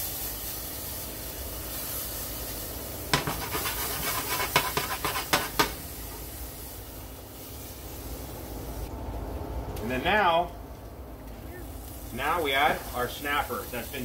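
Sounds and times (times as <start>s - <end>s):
garlic sizzling in a saucepan: 0.0s - 8.7s, 11.7s - 14.0s
pan scraping on stove: 3.1s - 5.8s.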